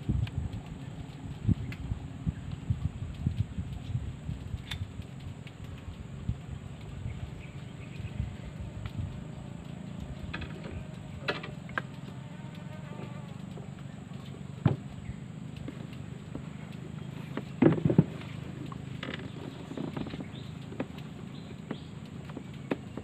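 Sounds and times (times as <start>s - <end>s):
fly buzzing: 7.4s - 14.9s.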